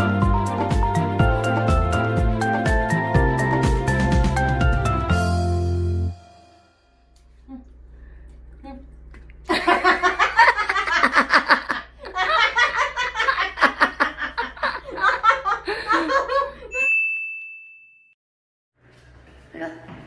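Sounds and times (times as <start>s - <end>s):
hearty laughter: 9.5s - 16.7s.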